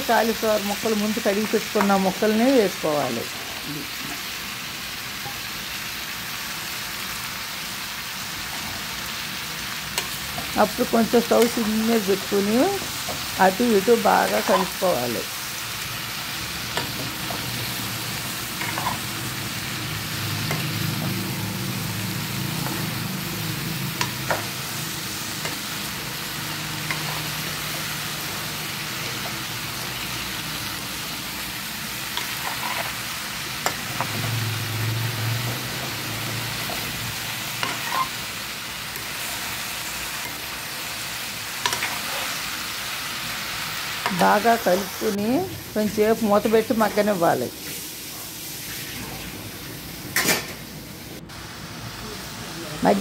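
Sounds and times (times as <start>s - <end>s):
vegetables sizzling in a pan: 0.0s - 53.0s
spoon scraping a pan: 14.0s - 14.9s, 18.6s - 19.1s, 25.4s - 28.0s, 32.1s - 34.4s, 37.6s - 38.3s, 41.6s - 42.5s.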